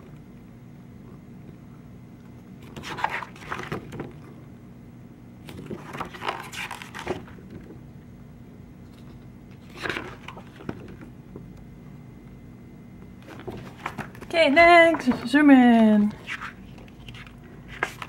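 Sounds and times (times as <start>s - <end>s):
steady low hum: 0.0s - 18.0s
book pages rustling and flapping: 2.6s - 4.2s, 5.4s - 7.8s, 8.8s - 11.1s, 13.2s - 18.0s.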